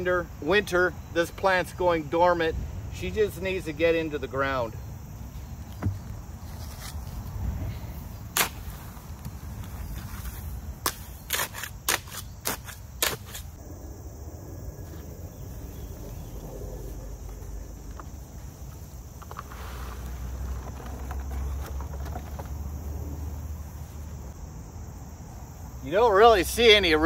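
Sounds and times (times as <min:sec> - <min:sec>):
low rustle: 0:14.7 - 0:24.4
metal tines scraping gravelly soil: 0:19.2 - 0:22.2.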